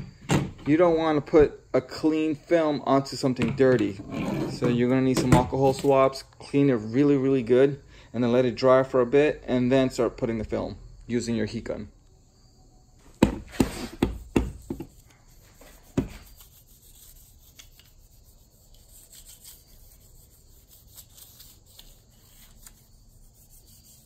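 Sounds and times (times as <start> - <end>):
pad rubbing on metal: 13.5 - 24.0.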